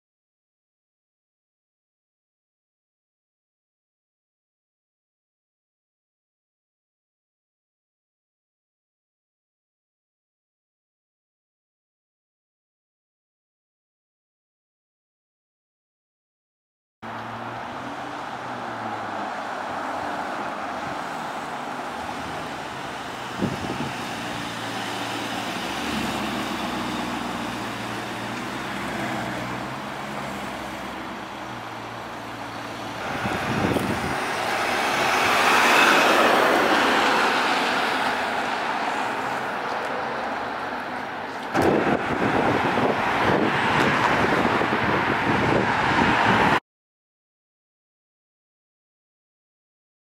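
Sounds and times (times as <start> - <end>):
car passing by: 17.0 - 46.6
cars driving on street: 17.0 - 46.6.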